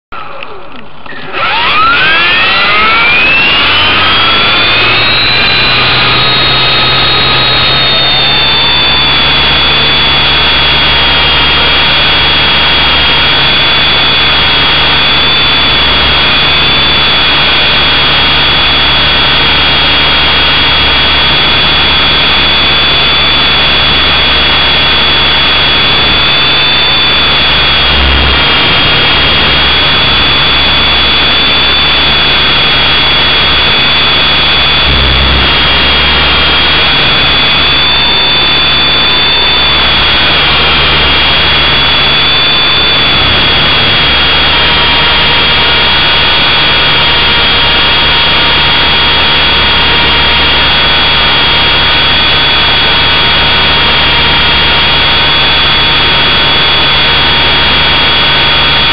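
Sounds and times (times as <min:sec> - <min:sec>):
model aircraft motor whine: 0:00.4 - 0:58.9
low rumble: 0:23.8 - 0:48.3.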